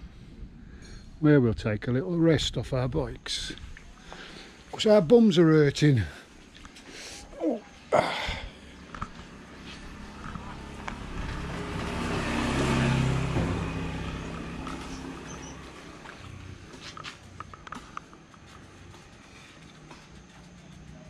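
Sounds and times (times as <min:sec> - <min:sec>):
vehicle driving past: 0:08.6 - 0:21.0
sharp knocks: 0:11.4 - 0:15.5.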